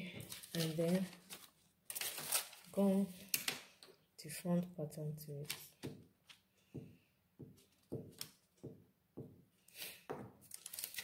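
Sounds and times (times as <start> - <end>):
paper rustling: 0.1 - 3.7, 10.4 - 11.0.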